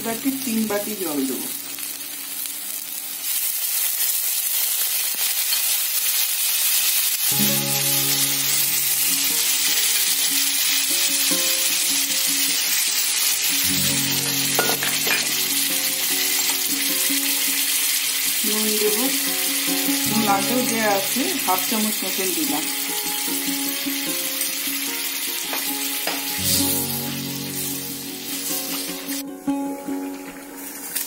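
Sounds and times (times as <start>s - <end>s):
masala sizzling in a pan: 0.0s - 31.0s
background music: 7.3s - 31.0s.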